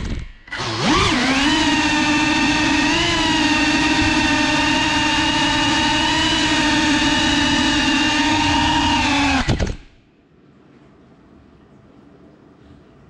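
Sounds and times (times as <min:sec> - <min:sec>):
drone motors whining: 0:00.0 - 0:10.0.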